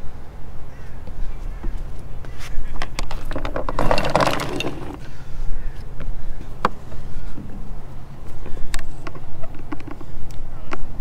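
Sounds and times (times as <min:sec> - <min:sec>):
hand tools clicking and scraping: 0:02.9 - 0:05.1.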